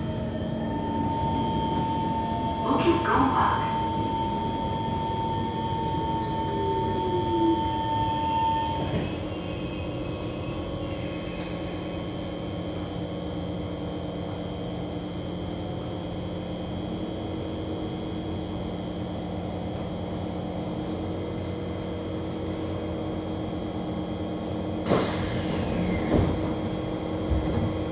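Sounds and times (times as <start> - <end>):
train carriage hum: 0.0 - 27.9
train motors whining down: 4.0 - 12.0
train doors sliding open: 5.7 - 11.9, 24.8 - 27.9.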